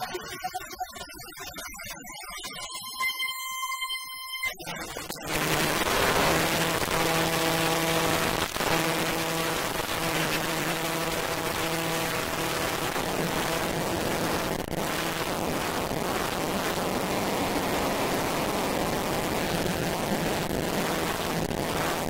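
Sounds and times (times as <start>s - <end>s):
low synth drone: 2.8s - 22.0s
rain-like noise wash: 5.3s - 22.0s.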